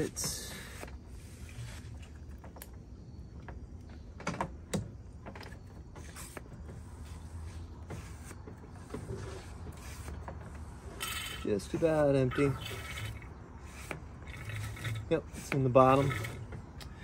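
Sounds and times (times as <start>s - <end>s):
pump humming: 8.0s - 17.0s.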